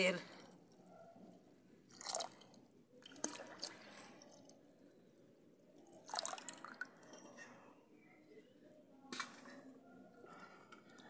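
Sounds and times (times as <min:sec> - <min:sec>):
faint liquid dripping: 0:01.8 - 0:07.7.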